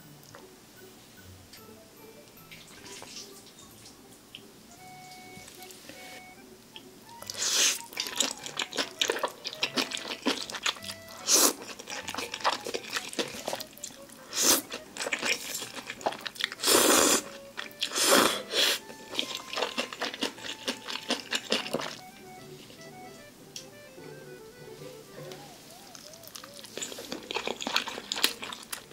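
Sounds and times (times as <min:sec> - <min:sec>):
wet crunchy chewing: 0:07.2 - 0:22.1, 0:25.4 - 0:28.9
slurping noodles: 0:07.3 - 0:22.0, 0:26.1 - 0:28.9
mouth clicks and smacks: 0:25.7 - 0:28.8.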